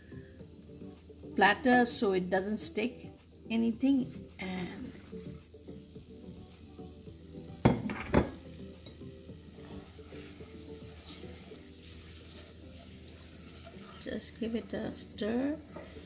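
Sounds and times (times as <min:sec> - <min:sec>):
mixture sizzling: 0:00.0 - 0:16.0
spatula stirring in a saucepan: 0:03.6 - 0:07.6, 0:08.3 - 0:16.0.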